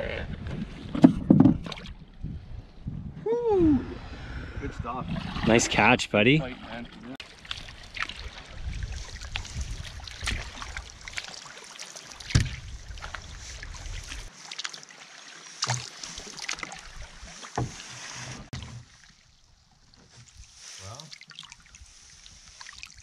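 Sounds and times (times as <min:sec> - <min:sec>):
wind on microphone: 0:00.0 - 0:06.0, 0:08.1 - 0:11.0, 0:12.3 - 0:14.3
water slapping hull: 0:04.9 - 0:23.0
paddles splashing: 0:05.0 - 0:23.0.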